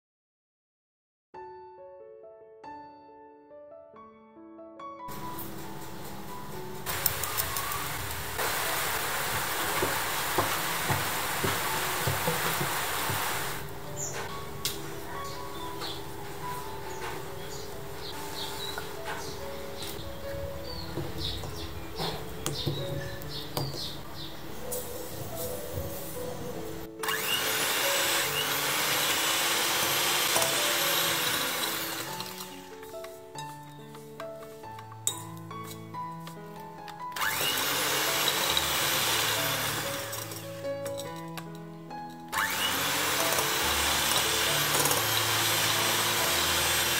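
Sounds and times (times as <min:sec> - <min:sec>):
steady hiss: 0:06.8 - 0:13.7
electric hand mixer running: 0:06.9 - 0:13.8, 0:27.0 - 0:32.8, 0:37.2 - 0:40.4, 0:42.3 - 0:46.9
cookies knocking on baking mat: 0:09.3 - 0:13.2.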